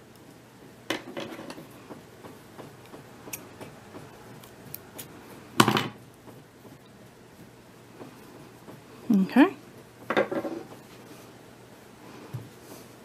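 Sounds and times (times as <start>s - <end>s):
scissors snipping yarn: 2.7s - 5.2s.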